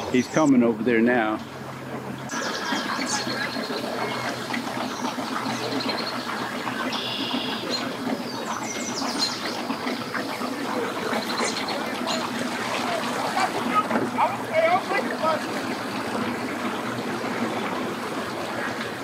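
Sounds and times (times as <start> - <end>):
birds chirping: 0.0 - 19.0
outboard motors churning water: 0.0 - 19.0.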